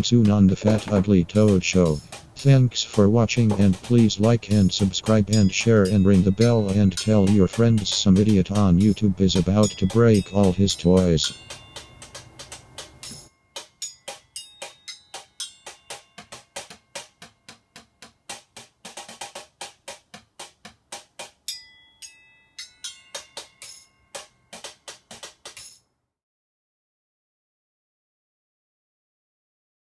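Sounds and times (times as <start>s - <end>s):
bucket and pot drumming: 0.0s - 21.5s.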